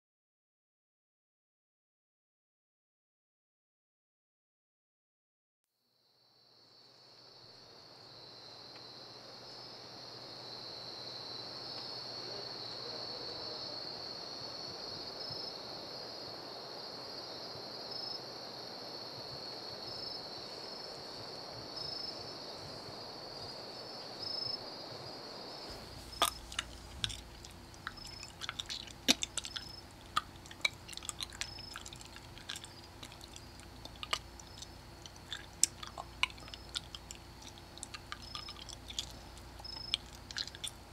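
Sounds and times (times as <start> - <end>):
wet squelching and clicking: 25.7 - 40.9.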